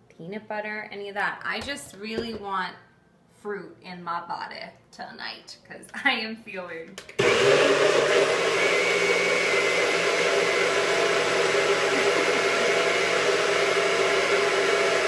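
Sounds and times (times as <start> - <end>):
blender motor whirring: 7.2 - 15.0.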